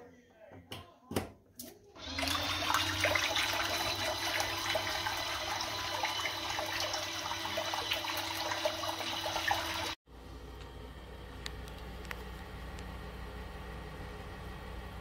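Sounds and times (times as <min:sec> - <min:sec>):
motor hum: 0:02.0 - 0:15.0
water churning and splashing: 0:02.2 - 0:10.0.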